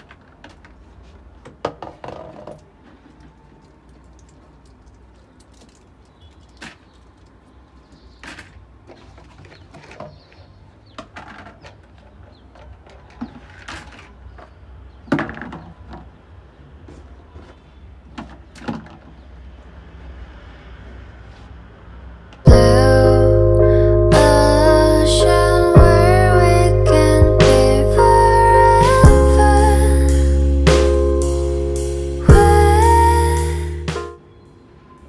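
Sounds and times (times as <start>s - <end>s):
steady low hum: 22.5s - 34.2s.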